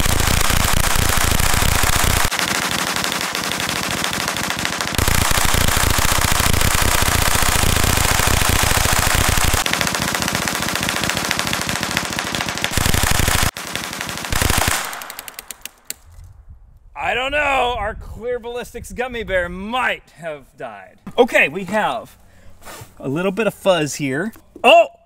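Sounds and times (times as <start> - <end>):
gatling gun rapid firing: 0.0 - 15.7.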